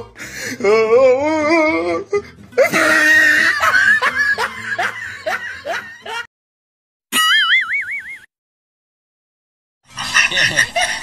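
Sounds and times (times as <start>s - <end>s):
music: 0.0s - 6.3s
loud laughter: 2.6s - 6.3s, 9.9s - 11.0s.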